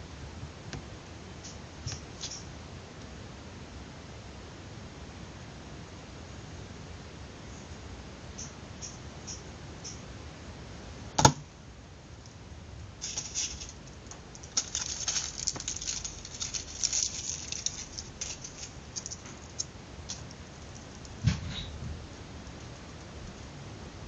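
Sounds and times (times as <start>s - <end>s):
paper crinkling and rustling: 13.0s - 21.8s.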